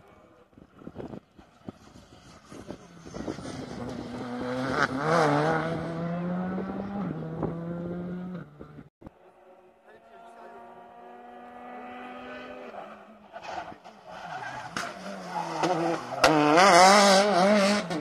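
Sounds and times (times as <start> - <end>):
rally car engine accelerating: 3.2 - 8.8, 10.2 - 18.0.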